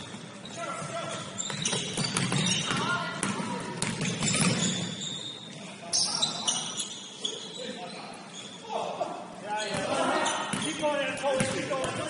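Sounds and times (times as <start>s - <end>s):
sneaker squeaks: 0.0s - 8.7s, 9.6s - 11.5s
basketball bouncing: 1.5s - 4.8s.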